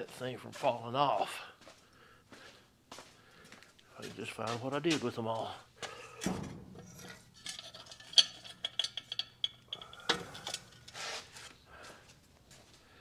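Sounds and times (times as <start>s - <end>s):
lug nuts clinking: 6.1s - 11.6s
metal knock: 6.2s - 9.0s.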